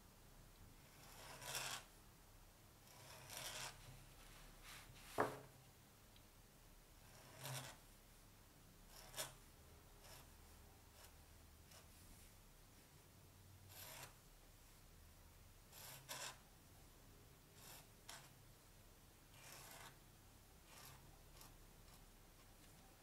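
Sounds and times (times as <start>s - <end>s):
pen nib scratching on card: 1.0s - 1.8s, 2.9s - 3.8s, 7.1s - 7.8s, 8.9s - 9.4s, 15.8s - 16.4s, 19.4s - 20.0s, 20.7s - 22.0s.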